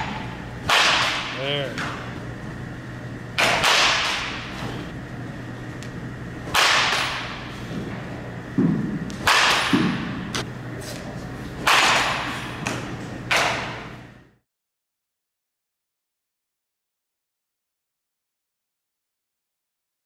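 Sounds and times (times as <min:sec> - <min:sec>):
bat cracking against ball: 0:00.0 - 0:02.0, 0:03.4 - 0:04.8, 0:05.8 - 0:10.5, 0:11.6 - 0:14.0.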